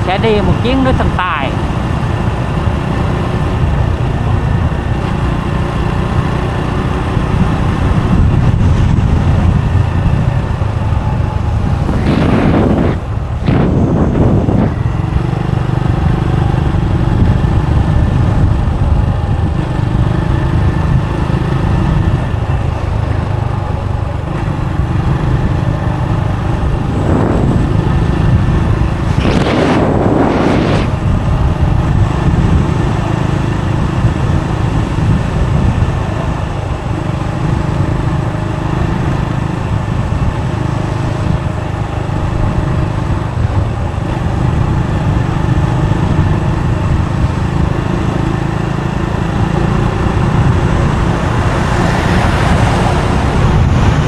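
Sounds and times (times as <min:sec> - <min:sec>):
motorbike engine running: 0:00.0 - 0:54.0
wind rumble on microphone: 0:00.0 - 0:54.0
rushing sounds: 0:10.6 - 0:15.8.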